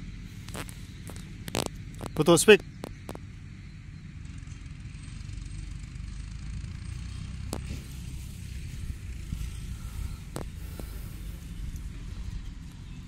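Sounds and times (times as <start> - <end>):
wind rumbling on microphone: 0.3 - 3.3, 7.4 - 13.0.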